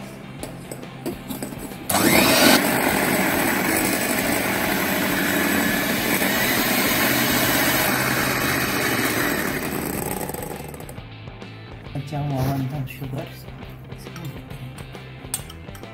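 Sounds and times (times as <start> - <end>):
electric hand mixer whirring: 1.9 - 11.0.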